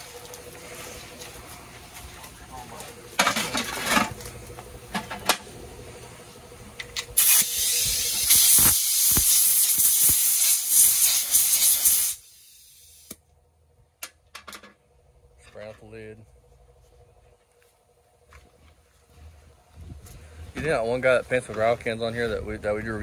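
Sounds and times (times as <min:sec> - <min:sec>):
compressed air hissing: 0:07.2 - 0:13.2.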